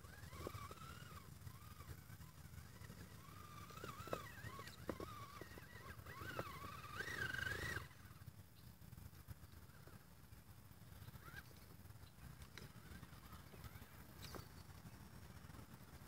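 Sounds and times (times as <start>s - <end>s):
electric motor whining: 0.0s - 8.2s.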